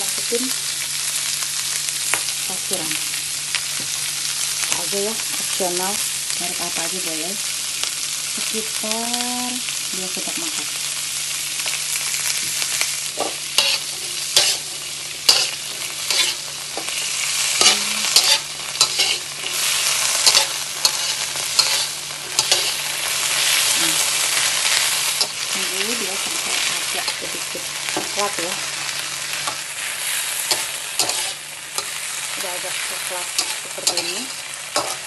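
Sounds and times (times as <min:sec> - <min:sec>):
food sizzling in a wok: 0:00.0 - 0:35.0
metal spatula scraping a wok: 0:13.2 - 0:23.7, 0:29.4 - 0:32.3, 0:33.2 - 0:35.0.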